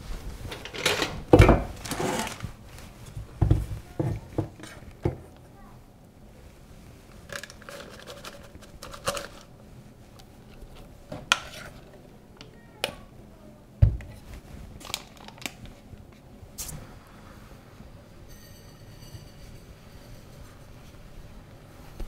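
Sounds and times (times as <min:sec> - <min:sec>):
spatula scraping a saucepan: 0:11.3 - 0:11.8.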